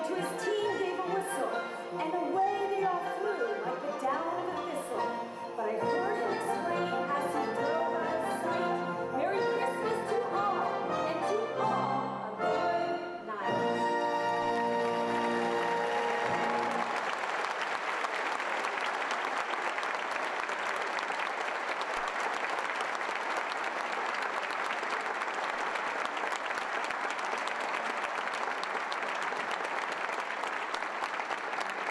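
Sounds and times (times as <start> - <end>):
large audience applauding: 14.2 - 31.9.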